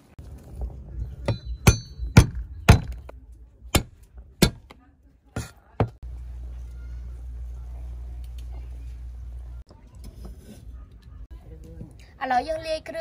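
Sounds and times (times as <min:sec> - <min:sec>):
steady low rumble: 0:00.0 - 0:04.7
cleaver chopping on wooden board: 0:03.8 - 0:04.7.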